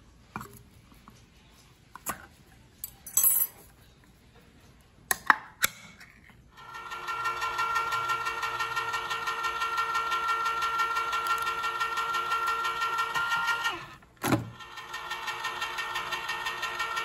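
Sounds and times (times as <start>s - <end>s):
electric can opener whining: 6.6s - 17.0s.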